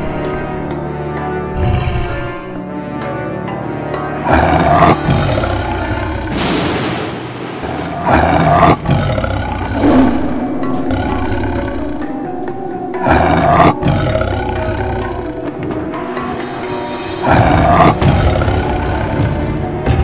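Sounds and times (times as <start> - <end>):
dramatic background music: 0.0 - 20.0
big cat roaring: 4.2 - 6.8, 7.6 - 12.3, 12.9 - 15.7, 16.5 - 19.8.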